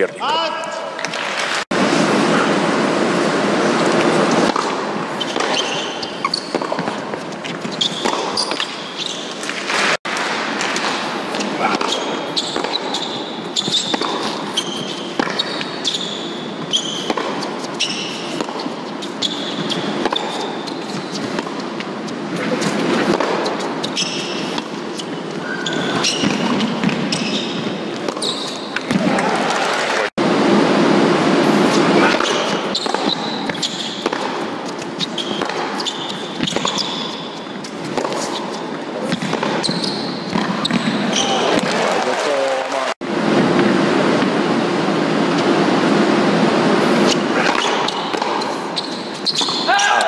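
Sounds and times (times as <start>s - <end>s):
crowd noise in large hall: 0.0s - 50.0s
applause: 1.1s - 1.7s, 29.2s - 30.1s, 41.5s - 43.0s
tennis ball struck by rackets: 3.9s - 15.8s, 16.4s - 25.0s, 31.7s - 41.7s, 46.9s - 48.6s
ball bouncing on court: 3.9s - 29.4s, 31.7s - 42.0s, 47.1s - 50.0s
sneaker squeaks: 4.2s - 10.0s, 11.3s - 29.3s, 31.7s - 41.7s, 46.8s - 50.0s.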